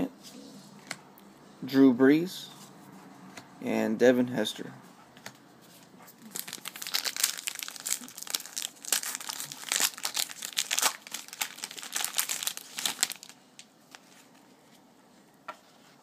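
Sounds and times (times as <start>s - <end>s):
wrapper crinkling and tearing: 6.2s - 14.2s.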